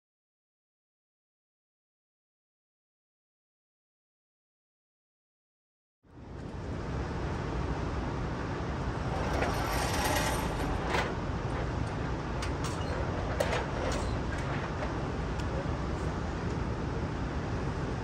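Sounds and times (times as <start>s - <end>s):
mechanical rumble of target carrier: 7.4s - 16.8s.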